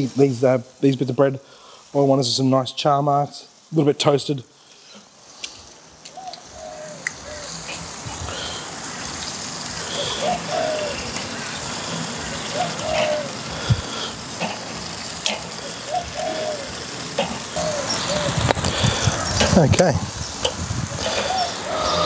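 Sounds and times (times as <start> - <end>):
grill sizzling and crackling: 0.0 - 22.0
bird calling: 6.0 - 22.0.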